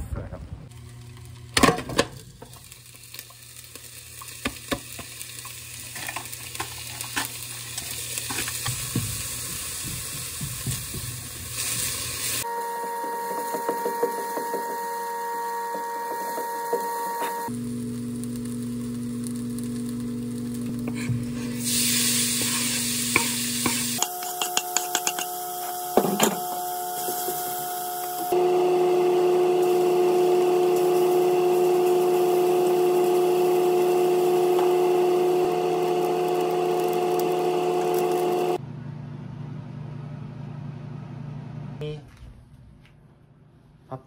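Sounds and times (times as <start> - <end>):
food sizzling in oil: 2.2 - 38.6
spatula scraping pan: 20.8 - 27.6.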